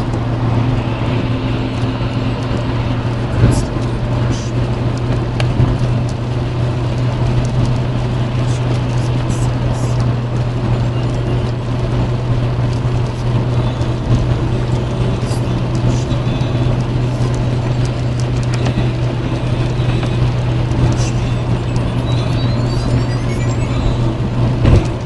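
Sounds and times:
tyres hissing on wet road: 0:00.0 - 0:05.0
engine and road drone: 0:00.0 - 0:25.0.

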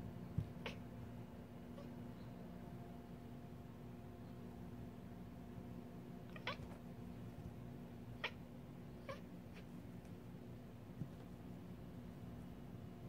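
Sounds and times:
faint steady hum: 0:00.0 - 0:13.0
cat chirping: 0:06.3 - 0:06.8, 0:08.2 - 0:08.4.

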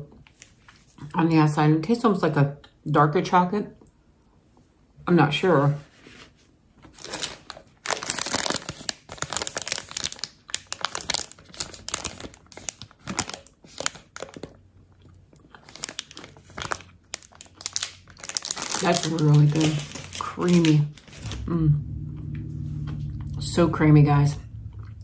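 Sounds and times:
plastic snack bag crinkling: 0:06.8 - 0:21.5.

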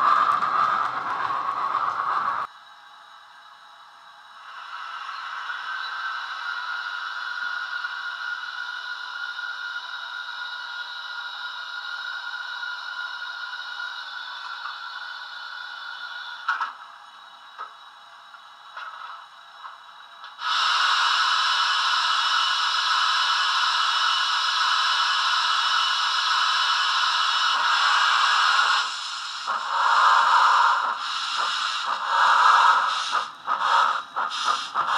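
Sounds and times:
quiet steam hiss: 0:01.6 - 0:34.9
loud escaping steam hiss: 0:04.4 - 0:16.4, 0:20.4 - 0:34.9.

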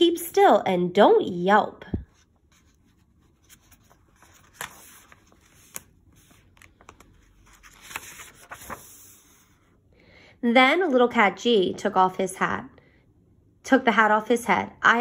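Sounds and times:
book pages rustling: 0:01.9 - 0:09.8.

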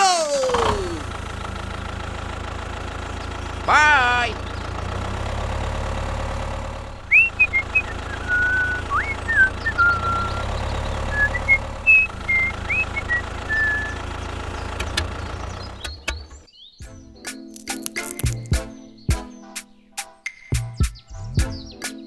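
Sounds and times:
tractor engine rumble: 0:00.0 - 0:16.5
person whistling a tune: 0:07.1 - 0:10.5, 0:11.1 - 0:14.0.

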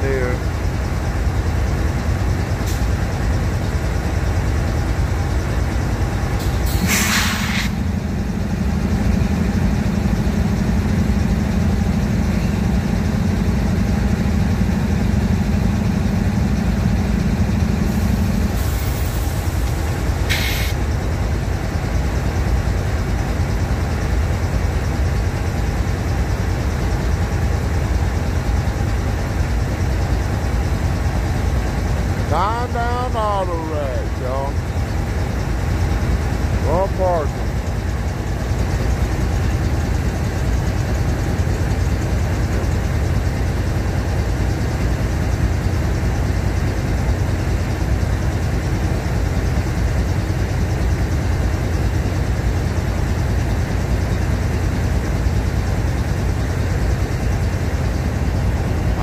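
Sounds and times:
diesel locomotive idling: 0:00.0 - 0:59.0
air brake hissing: 0:02.6 - 0:03.0, 0:06.4 - 0:08.0, 0:17.9 - 0:20.8.

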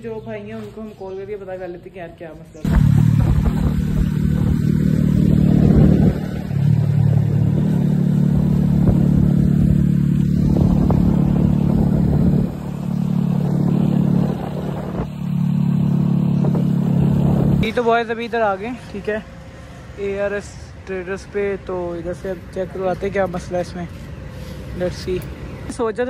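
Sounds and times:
motorcycle engine running: 0:02.6 - 0:18.0.

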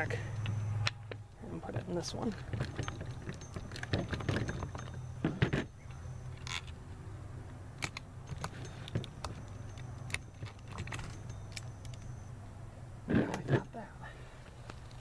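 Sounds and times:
metal parts clinking and rattling: 0:01.7 - 0:06.8, 0:07.7 - 0:12.2.

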